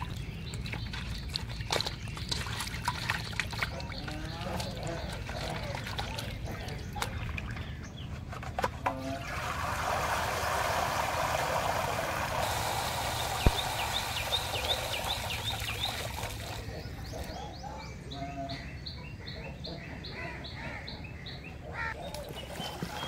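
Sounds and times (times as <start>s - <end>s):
water splashing on ground: 0.0s - 7.6s, 9.2s - 16.7s
water draining through colander: 0.0s - 7.7s, 8.9s - 16.6s
birds chirping: 0.0s - 9.4s, 12.4s - 23.0s.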